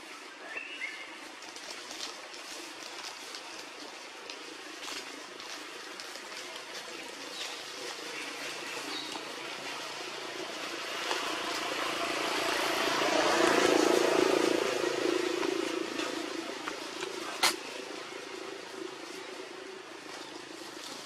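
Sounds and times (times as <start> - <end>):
motor vehicle passing: 9.5 - 18.6.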